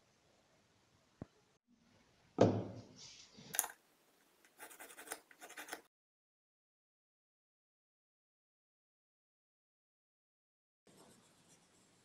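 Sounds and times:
pencil scratching on wood: 4.5s - 5.9s.

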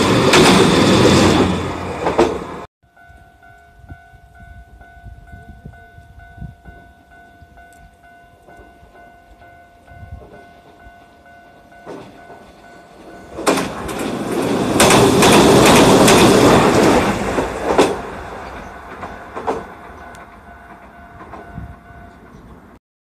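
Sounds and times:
tram passing: 0.0s - 22.8s
wheel clicks over rail joints: 13.3s - 22.4s.

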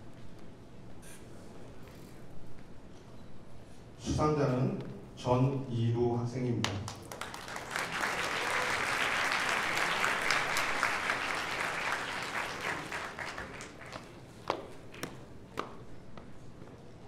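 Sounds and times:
audience applauding: 6.9s - 15.2s.

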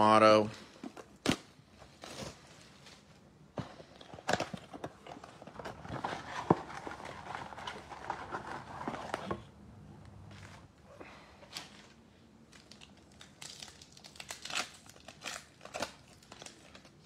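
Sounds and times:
cardboard and wrapper crinkling: 0.7s - 9.5s, 11.4s - 17.0s.

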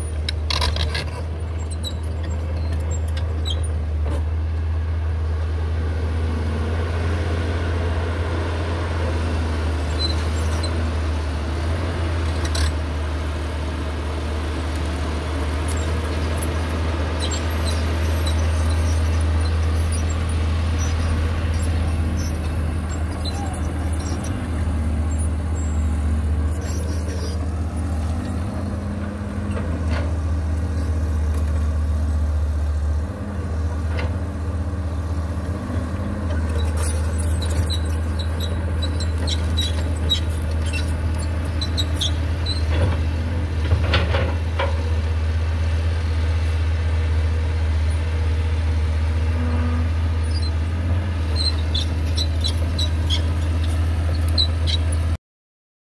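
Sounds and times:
squeaks and clanks of excavator arm: 0.0s - 4.4s, 9.8s - 12.9s, 15.5s - 45.1s, 49.2s - 55.2s
excavator diesel engine running: 0.0s - 55.2s.

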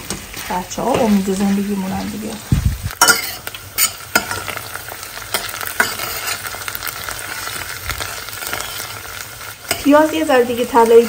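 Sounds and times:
onion sizzling in oil: 0.0s - 11.0s
metal spoon scraping pot: 3.0s - 4.5s, 5.3s - 6.5s.

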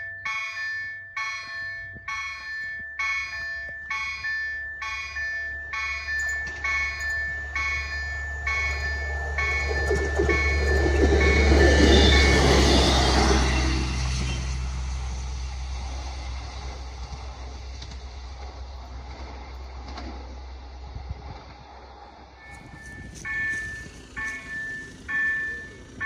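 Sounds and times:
level crossing bell chiming: 0.0s - 13.0s, 22.4s - 26.0s
train rolling over rails: 0.0s - 26.0s.

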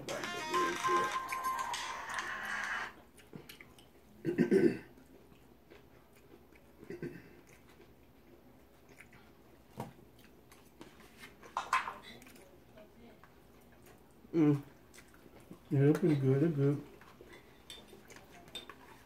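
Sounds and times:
people chewing and biting: 0.0s - 12.6s, 13.2s - 19.0s
forks clicking on plates: 17.4s - 19.0s.

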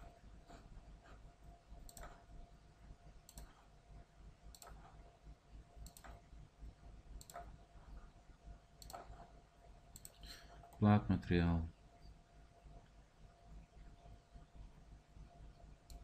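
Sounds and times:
computer mouse clicks: 1.8s - 2.3s, 3.2s - 3.7s, 4.5s - 5.0s, 5.8s - 6.3s, 7.2s - 7.6s, 8.8s - 10.8s, 15.5s - 16.0s.

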